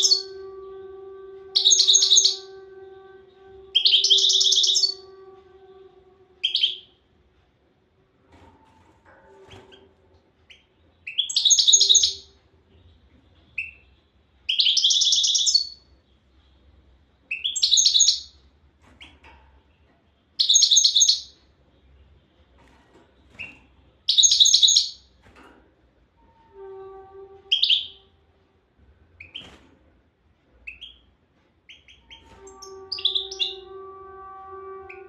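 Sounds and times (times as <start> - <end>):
goldfinch twittering song: 1.6 - 2.5, 3.8 - 5.0, 10.5 - 12.3, 14.5 - 15.8, 17.3 - 18.3, 20.4 - 21.3, 23.3 - 25.0, 31.7 - 33.6.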